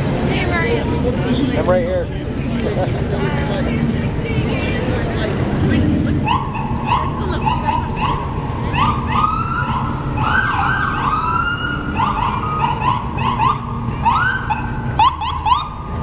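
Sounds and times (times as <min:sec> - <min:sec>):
city traffic rumble: 0:00.0 - 0:16.0
emergency vehicle siren: 0:06.1 - 0:16.0.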